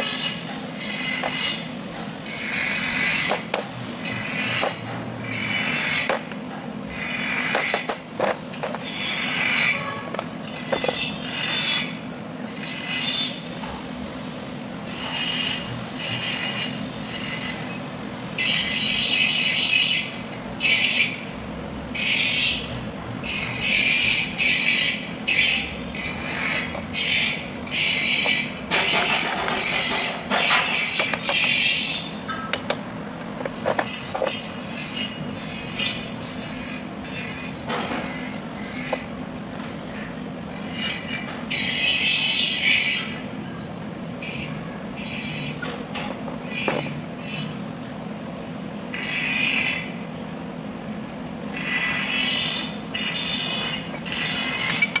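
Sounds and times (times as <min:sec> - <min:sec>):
steel parts clinking and scraping: 0:54.1 - 0:55.0.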